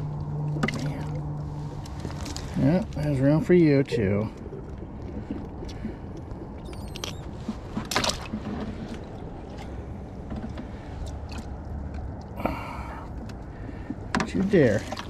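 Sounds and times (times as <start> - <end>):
low rumble of surf: 0.0 - 15.0
fish splashing in bucket: 13.7 - 15.0.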